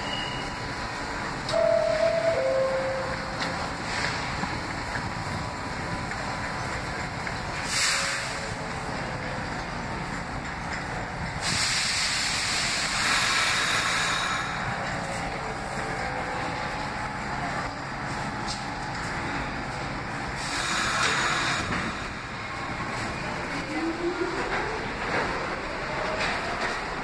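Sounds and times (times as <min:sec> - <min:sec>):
standing train rumbling: 0:00.0 - 0:27.0
air brakes hissing: 0:07.6 - 0:08.6, 0:11.4 - 0:14.7, 0:20.4 - 0:22.1.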